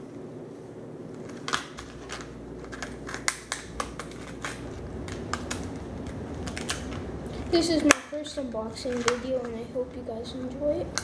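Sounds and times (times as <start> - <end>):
plastic bag crinkling: 1.2 - 9.7.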